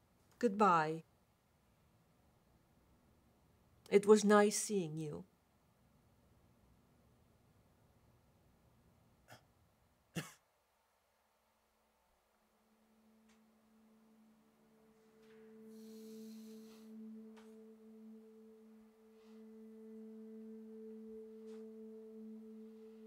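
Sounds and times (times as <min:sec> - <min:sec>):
low music drone: 0:12.6 - 0:23.0.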